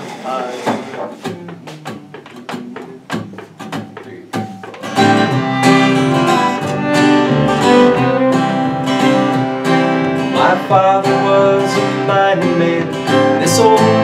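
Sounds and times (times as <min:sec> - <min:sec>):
guitar strumming: 0:00.6 - 0:14.0
plucked string notes: 0:00.8 - 0:14.0
bluegrass string band playing: 0:04.6 - 0:13.7.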